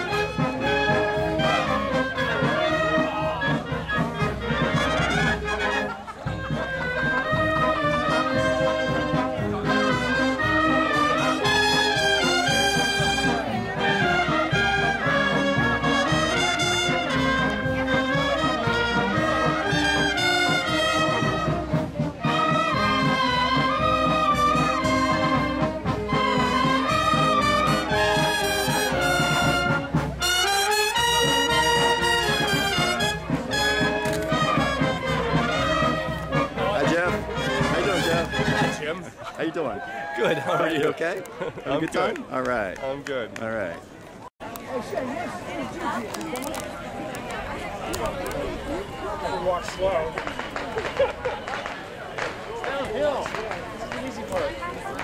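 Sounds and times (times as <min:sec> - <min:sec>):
marching band playing: 0:00.0 - 0:40.8, 0:45.8 - 0:55.0.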